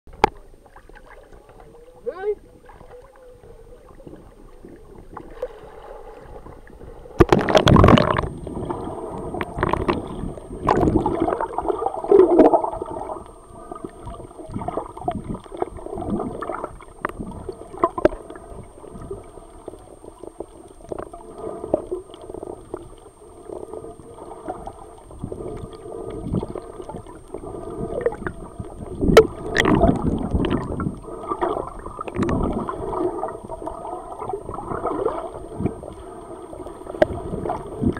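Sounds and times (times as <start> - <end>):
water gurgling underwater: 0.1 - 37.9
water rushing: 0.2 - 25.6, 26.3 - 37.9.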